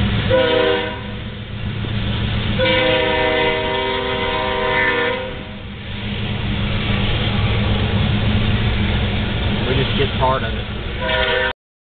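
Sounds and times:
freight cars rumbling past: 0:00.0 - 0:11.6
train horn blast: 0:00.2 - 0:01.3, 0:02.6 - 0:05.6, 0:11.0 - 0:11.6.

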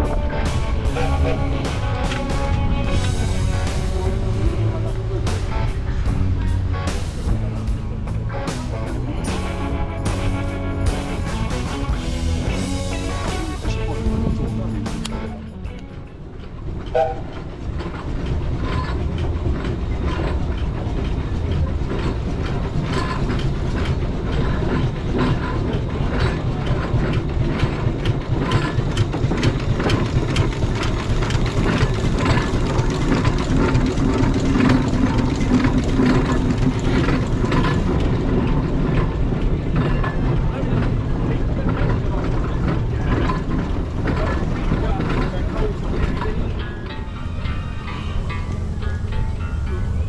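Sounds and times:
clatter of engine motion: 0:00.0 - 0:50.0
steam engine exhaust chuffs: 0:16.6 - 0:46.7.

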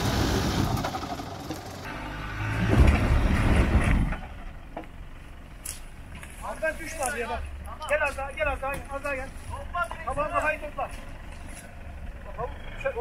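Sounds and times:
truck engine revving: 0:00.0 - 0:05.8.

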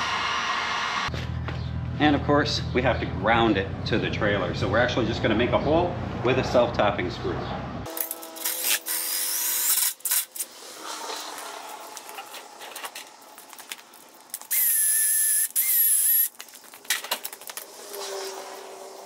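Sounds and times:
cordless drill whine: 0:14.4 - 0:16.3.

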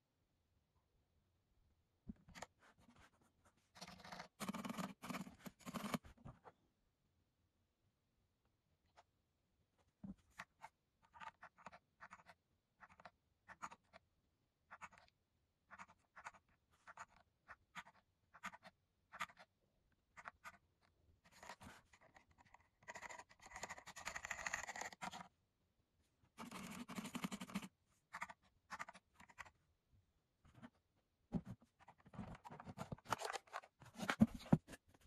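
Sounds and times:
fast typing: 0:04.4 - 0:06.0, 0:26.4 - 0:27.7.

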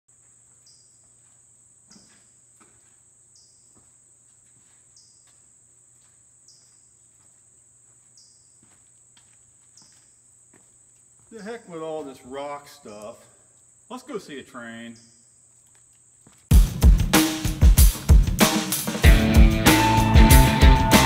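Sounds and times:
footsteps on gritty rock: 0:00.1 - 0:12.3, 0:15.5 - 0:16.9
insects droning: 0:00.1 - 0:19.1.

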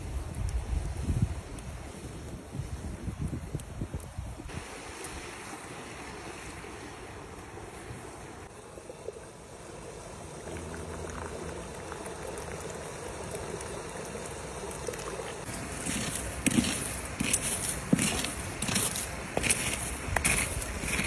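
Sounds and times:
small stream running: 0:00.0 - 0:21.0
tea pouring into a cup: 0:10.4 - 0:16.8.

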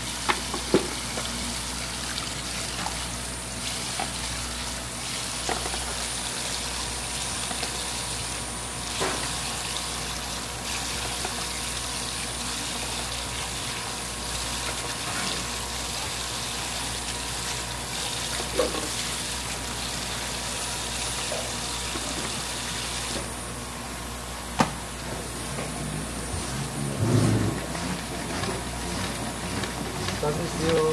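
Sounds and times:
water running from a tap: 0:00.0 - 0:23.5, 0:24.9 - 0:30.9.

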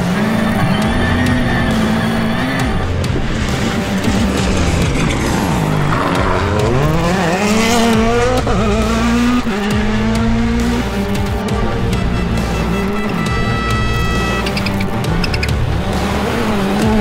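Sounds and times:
rally car engine revving: 0:00.0 - 0:17.0.

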